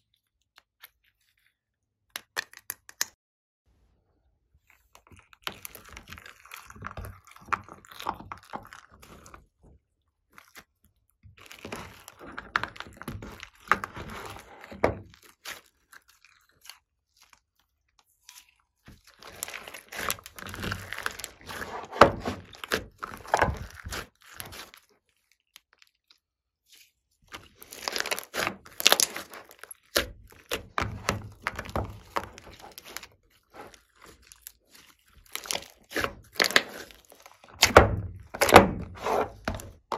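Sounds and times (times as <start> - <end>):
hands squelching slime: 4.5 - 39.9.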